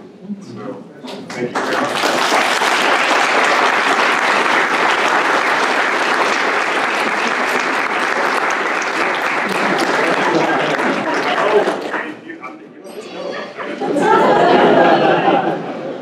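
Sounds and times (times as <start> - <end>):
audience applauding: 1.3 - 12.5.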